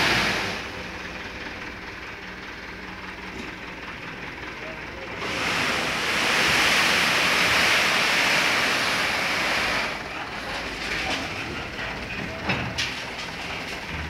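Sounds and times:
truck engine running: 0:00.0 - 0:14.0
sand sliding out of truck bed: 0:05.2 - 0:10.1.

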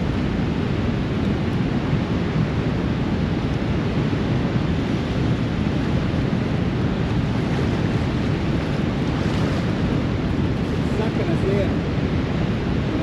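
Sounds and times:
water rushing through spillway: 0:00.0 - 0:13.0
wind buffeting microphone: 0:00.0 - 0:13.0.

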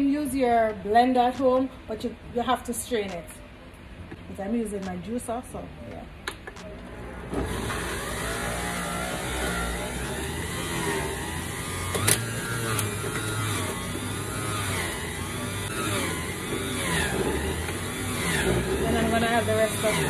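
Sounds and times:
juicer motor running: 0:06.8 - 0:20.0.

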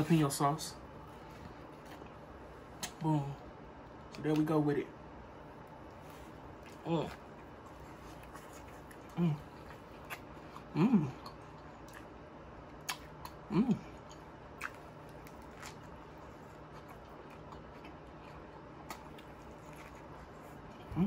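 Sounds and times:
man chewing food: 0:00.8 - 0:04.4, 0:05.4 - 0:21.0
man humming mmm: 0:10.6 - 0:11.4, 0:13.4 - 0:14.0
wet mouth clicks: 0:12.8 - 0:13.4.

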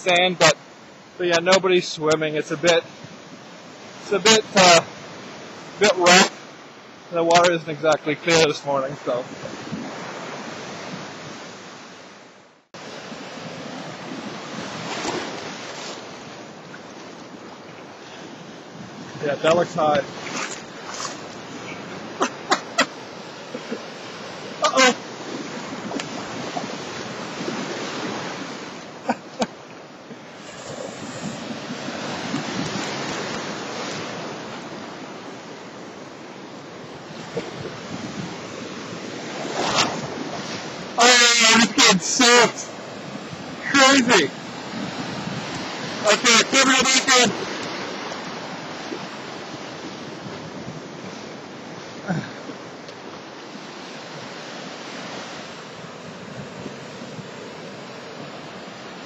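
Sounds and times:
lake waves washing ashore: 0:00.0 - 0:59.0
wind on microphone: 0:09.2 - 0:11.8, 0:13.0 - 0:28.8, 0:30.4 - 0:35.4, 0:36.8 - 0:41.0, 0:42.6 - 0:46.1, 0:47.3 - 0:52.3
wind buffeting microphone: 0:09.3 - 0:11.6, 0:30.4 - 0:35.4, 0:36.8 - 0:41.0, 0:44.3 - 0:46.1, 0:47.4 - 0:51.7.

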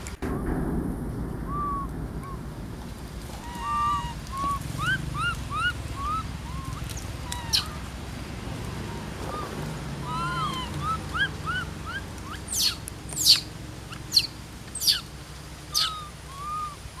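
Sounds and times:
low rumble: 0:00.0 - 0:17.0
monkeys chirping: 0:03.4 - 0:08.0, 0:08.6 - 0:15.1, 0:15.7 - 0:17.0.

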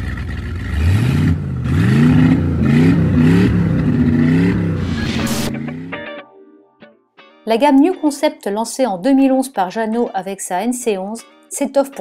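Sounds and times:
engine revving: 0:00.6 - 0:05.9.

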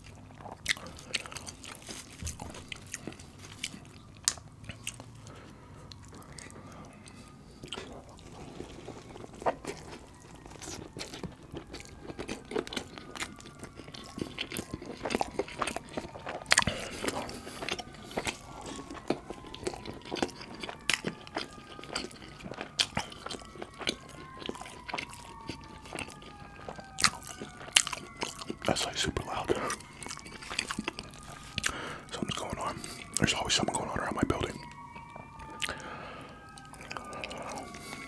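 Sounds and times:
close chewing and mouth sounds: 0:00.0 - 0:38.0
sirens wailing: 0:00.0 - 0:38.0.

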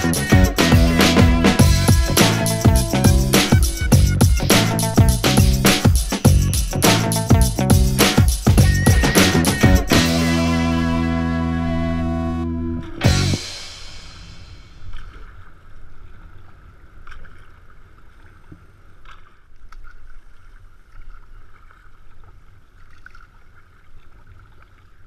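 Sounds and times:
low rumble: 0:00.0 - 0:05.7, 0:06.3 - 0:15.3
sudden loud noise: 0:07.8 - 0:15.0.

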